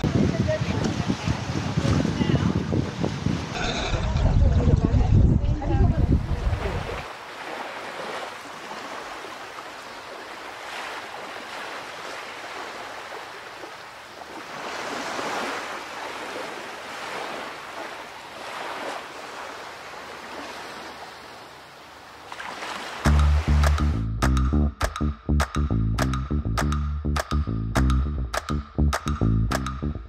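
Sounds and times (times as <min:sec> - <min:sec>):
water rushing along boat hulls: 0:00.0 - 0:24.0
wind: 0:00.0 - 0:30.0.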